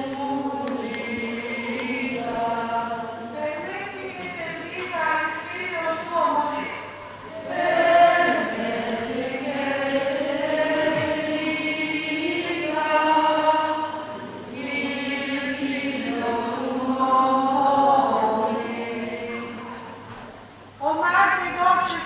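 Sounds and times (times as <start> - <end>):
crowd singing a religious chant: 0.0 - 3.4, 7.3 - 20.1.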